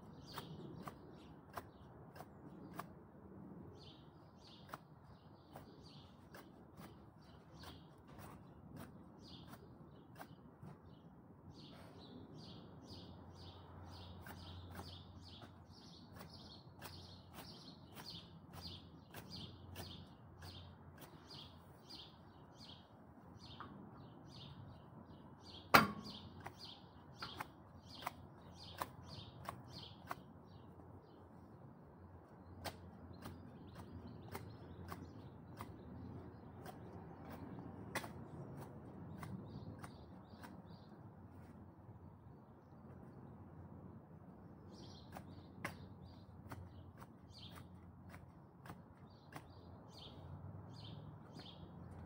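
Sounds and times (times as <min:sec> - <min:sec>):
bird chirping: 0:00.0 - 0:02.9, 0:03.7 - 0:31.6, 0:32.2 - 0:41.5, 0:44.7 - 0:48.3, 0:48.9 - 0:52.0
sharp clicks from hand work: 0:36.6 - 0:40.7.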